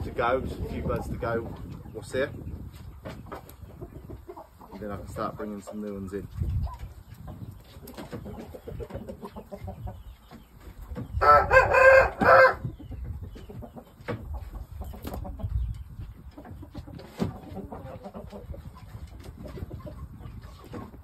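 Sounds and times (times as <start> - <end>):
rooster crowing: 11.2 - 12.6.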